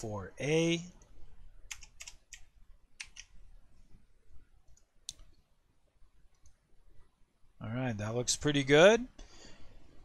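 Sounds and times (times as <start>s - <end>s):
faint room hiss: 0.0s - 10.0s
computer clicks: 1.7s - 3.4s.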